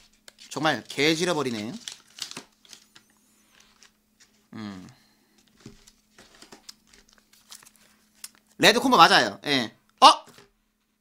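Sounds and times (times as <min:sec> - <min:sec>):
paper packaging crinkling: 0:00.0 - 0:04.5, 0:05.2 - 0:08.6
person humming: 0:04.5 - 0:05.0.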